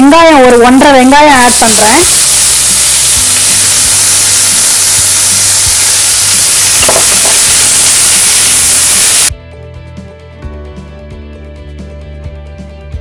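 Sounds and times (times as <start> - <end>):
onions sizzling in hot oil: 0.3 - 9.3
guitar background music: 8.7 - 13.0.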